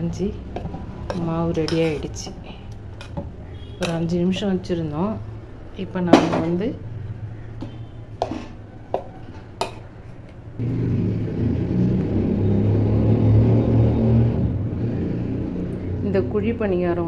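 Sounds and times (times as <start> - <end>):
cooktop electric hum and fan: 0.0 - 12.6.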